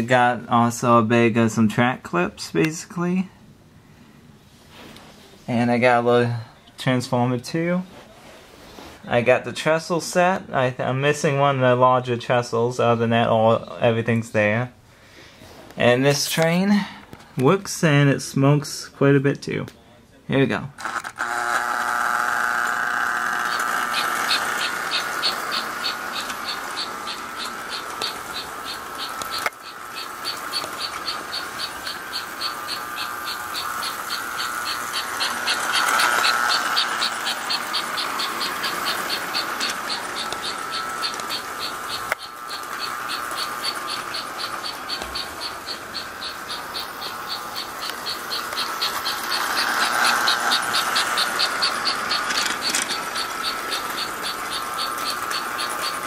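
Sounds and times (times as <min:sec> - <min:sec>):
toy train motor humming: 0:20.8 - 0:56.0
rapid even chugging: 0:22.0 - 0:56.0.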